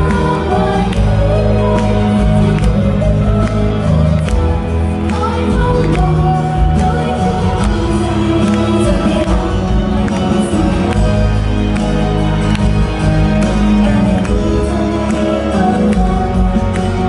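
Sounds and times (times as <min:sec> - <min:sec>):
girls singing into microphones: 0:00.0 - 0:11.2
pop backing music with bass: 0:00.0 - 0:17.0.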